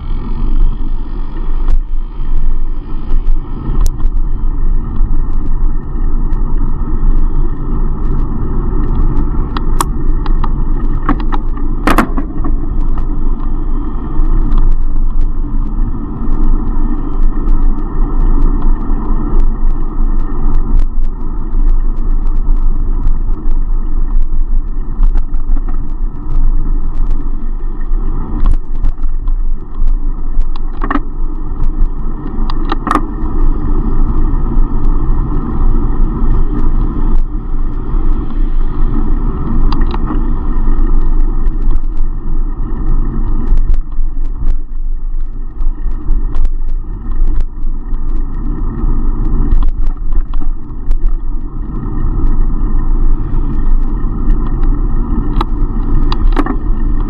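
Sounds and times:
road noise: 0.0 - 57.0
sharp clicks and rattles: 0.0 - 57.0
wind rumble: 0.0 - 57.0.

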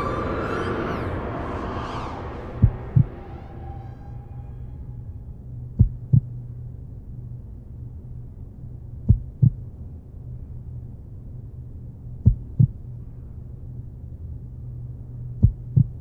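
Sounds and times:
low steady hum: 0.0 - 16.0
heartbeat: 2.6 - 3.1, 5.8 - 6.4, 9.0 - 9.7, 12.2 - 12.8, 15.4 - 16.0.

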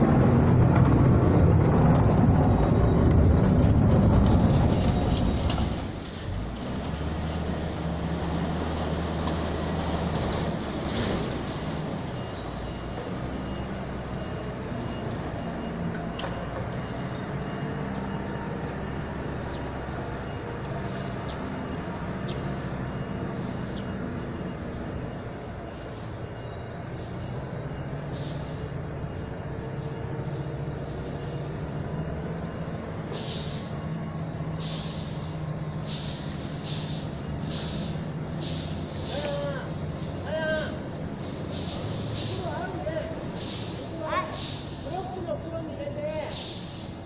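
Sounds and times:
low engine rumble: 0.0 - 6.9
engine humming: 0.0 - 47.0
short hissing bursts: 43.4 - 44.9, 46.3 - 47.0.

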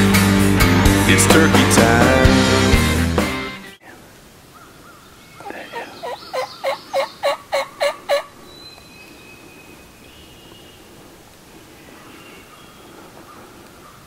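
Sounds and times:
faint songbird notes: 3.8 - 7.4, 8.4 - 14.0
turkey yelps: 4.6 - 8.4.

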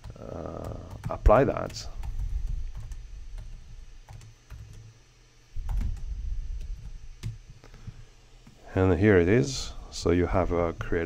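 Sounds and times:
low rumble: 5.5 - 7.2.

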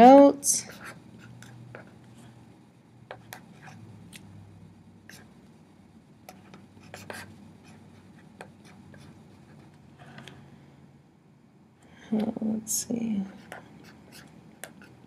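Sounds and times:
pen writing on paper: 0.7 - 2.0, 6.3 - 9.2, 13.4 - 15.0.

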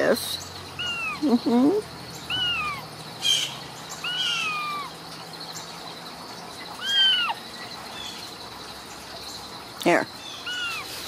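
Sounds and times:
kitten meowing: 0.8 - 1.4, 2.3 - 2.8, 4.0 - 4.9, 6.8 - 7.4, 10.4 - 10.9.

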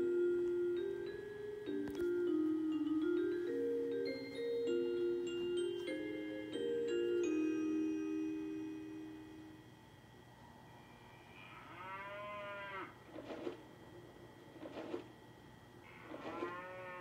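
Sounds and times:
music box chime notes: 0.0 - 9.5
cow mooing: 11.1 - 13.0, 15.8 - 17.0.

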